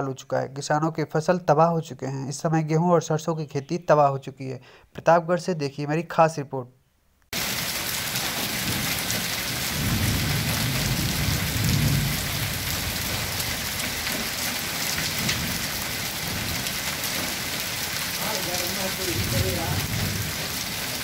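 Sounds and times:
hail and heavy rain pelting: 7.4 - 21.0.

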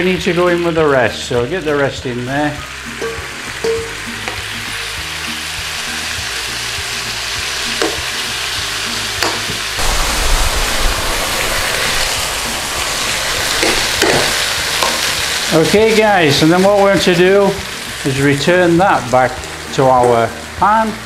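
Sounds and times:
meat sizzling in a frying pan: 0.0 - 21.0.

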